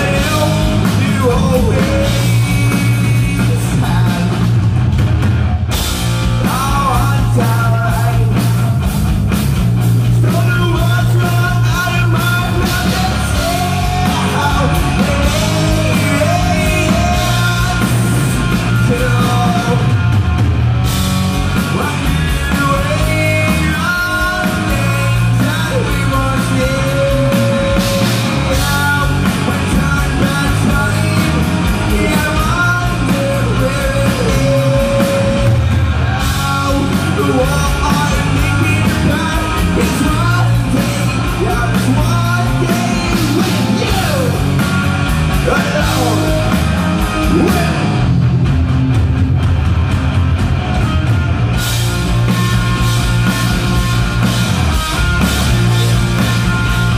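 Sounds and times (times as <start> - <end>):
man singing: 0.0 - 4.6, 6.4 - 8.8, 10.1 - 20.0, 21.6 - 44.5, 45.3 - 48.0
drums: 0.0 - 56.9
electric guitars: 0.0 - 56.9.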